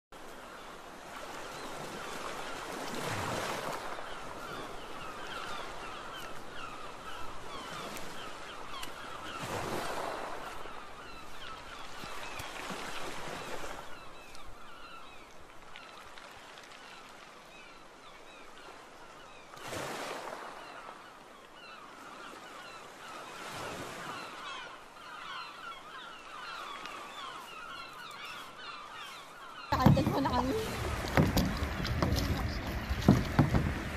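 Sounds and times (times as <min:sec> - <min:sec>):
waves washing in: 0:00.2 - 0:14.0, 0:15.8 - 0:33.9
small birds chattering: 0:24.2 - 0:33.6.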